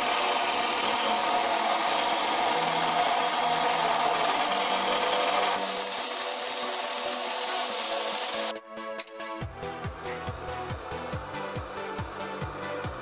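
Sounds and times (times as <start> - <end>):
belt grinder hissing: 0.0 - 8.5.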